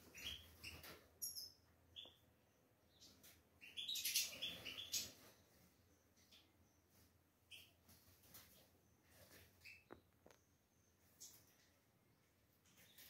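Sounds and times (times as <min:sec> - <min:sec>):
finches chirping: 0:00.0 - 0:02.2, 0:02.9 - 0:05.3.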